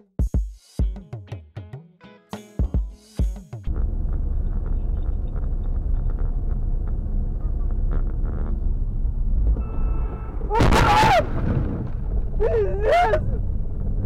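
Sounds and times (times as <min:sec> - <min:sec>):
car engine and road rumble: 0:03.7 - 0:10.6, 0:11.2 - 0:14.0
short horn-like tone: 0:09.6 - 0:10.5
loud sudden crash: 0:10.4 - 0:12.5
person crying out: 0:12.4 - 0:13.4.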